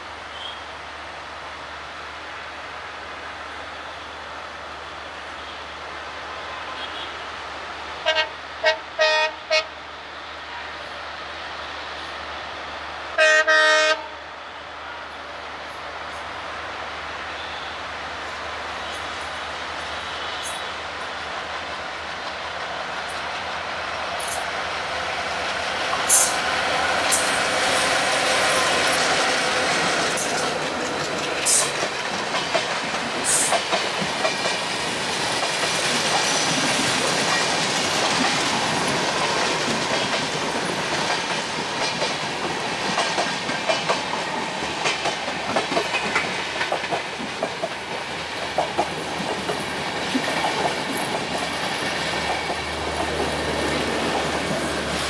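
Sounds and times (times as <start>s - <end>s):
diesel locomotive passing: 0.0s - 55.0s
wheels clattering over rail joints: 29.7s - 55.0s.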